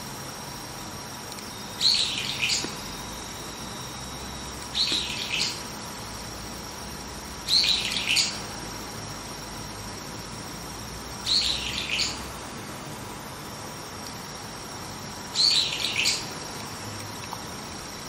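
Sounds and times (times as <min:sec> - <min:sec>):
bird high-pitched calls: 0:01.7 - 0:02.8, 0:04.7 - 0:05.6, 0:07.5 - 0:08.4, 0:11.2 - 0:12.2, 0:15.3 - 0:16.3.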